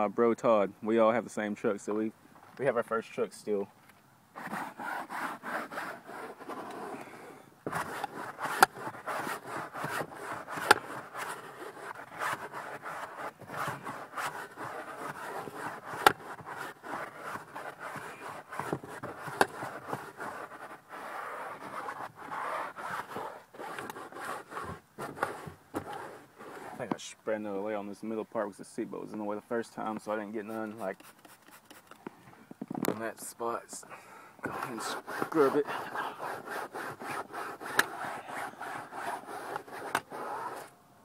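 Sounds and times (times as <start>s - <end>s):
hand rubbing cloth upholstery: 7.7s - 26.9s, 34.4s - 40.7s.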